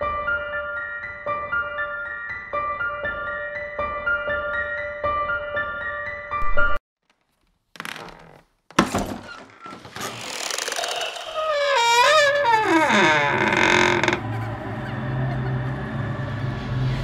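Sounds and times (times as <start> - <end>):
piano music: 0.0 - 6.8
wooden door creaking open: 6.4 - 14.6.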